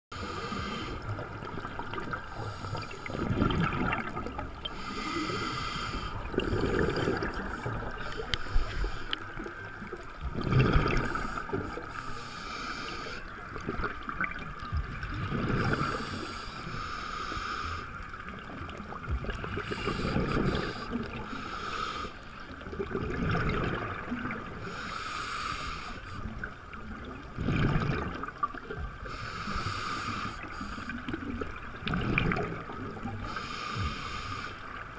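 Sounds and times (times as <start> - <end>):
exhaled bubbles underwater: 0.1 - 12.1, 12.9 - 16.7, 18.1 - 21.4, 22.5 - 24.9, 26.2 - 34.1
regulator inhalation hiss: 0.2 - 1.1, 4.6 - 7.3, 7.9 - 9.2, 11.1 - 13.3, 15.8 - 18.0, 19.7 - 22.2, 24.6 - 26.2, 29.1 - 31.0, 33.2 - 34.7.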